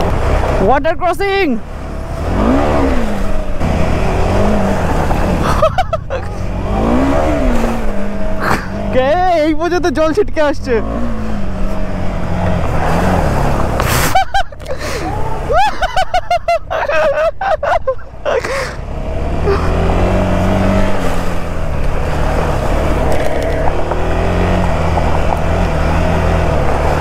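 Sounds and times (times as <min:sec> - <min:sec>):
motorcycle engine under load: 0:18.0 - 0:27.0.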